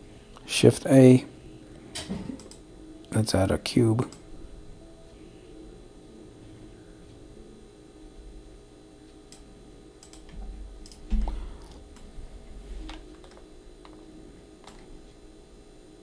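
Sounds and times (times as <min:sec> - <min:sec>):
keyboard and mouse clicks: 0:02.4 - 0:02.6, 0:10.0 - 0:12.1.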